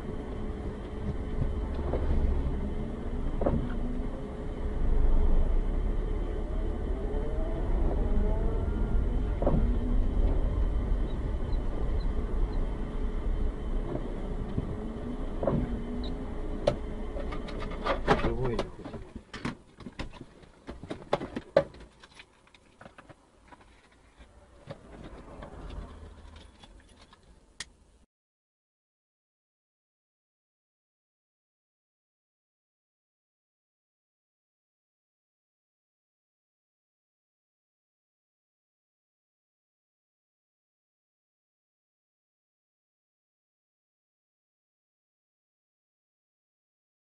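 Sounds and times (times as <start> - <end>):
car cabin rumble on wet road: 0.0 - 19.3.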